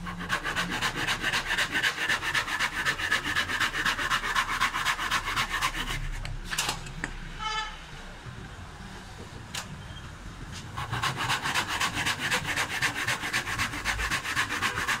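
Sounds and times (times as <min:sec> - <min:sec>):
hand saw cutting wood: 0:00.0 - 0:06.3, 0:10.8 - 0:15.0.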